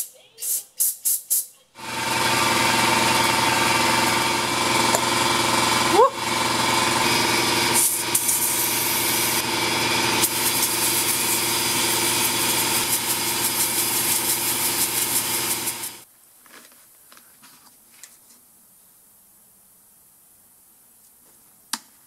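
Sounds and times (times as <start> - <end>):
machine motor humming: 1.8 - 16.0.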